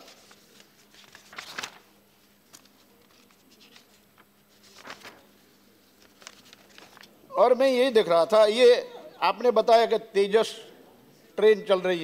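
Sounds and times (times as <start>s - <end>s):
soft handling rustles and clicks: 0.0s - 7.2s.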